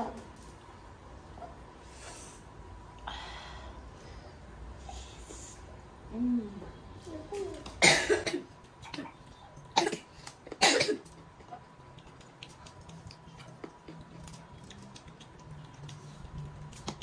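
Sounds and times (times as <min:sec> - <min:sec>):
person coughing: 0:07.8 - 0:09.1, 0:09.8 - 0:11.1.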